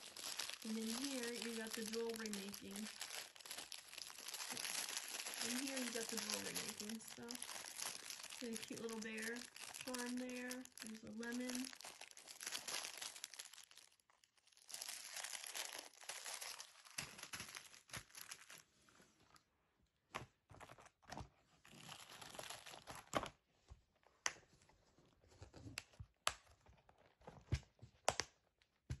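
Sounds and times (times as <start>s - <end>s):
plastic bag crinkling: 0.0s - 18.6s, 21.8s - 23.1s.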